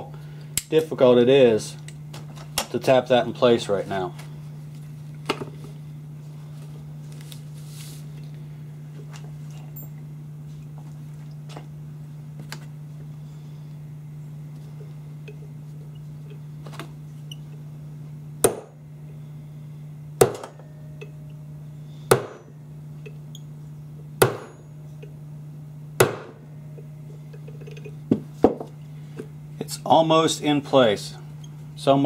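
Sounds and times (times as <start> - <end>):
low hum: 0.0 - 32.0
hammer striking pin punch: 18.4 - 18.8, 20.2 - 21.2, 22.1 - 22.6, 24.2 - 24.7, 26.0 - 26.5.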